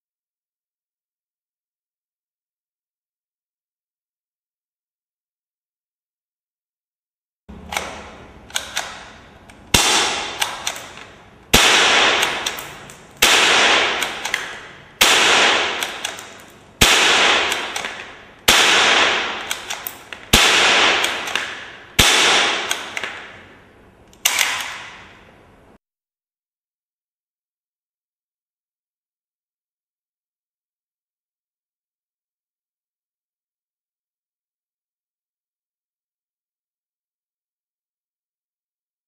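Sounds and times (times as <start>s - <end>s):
cap gun shots with echo: 9.7s - 10.9s, 11.5s - 12.6s, 13.2s - 23.4s.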